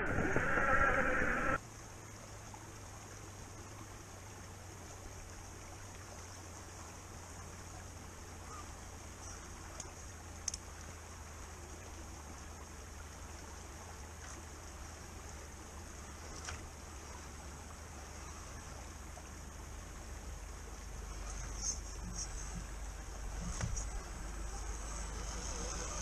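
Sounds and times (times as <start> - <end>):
creek water trickling over stones: 0.0 - 26.0
faint clicks: 9.2 - 10.7.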